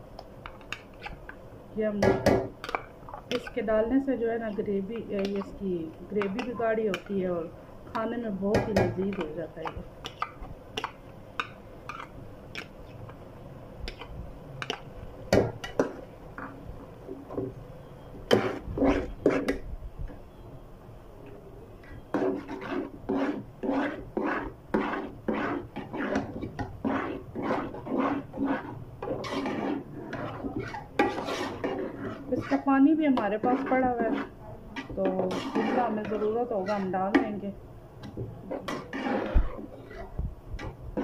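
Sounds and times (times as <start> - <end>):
metal ladle scraping metal pot: 2.6 - 3.7, 4.9 - 7.2, 21.8 - 37.4, 38.5 - 41.0.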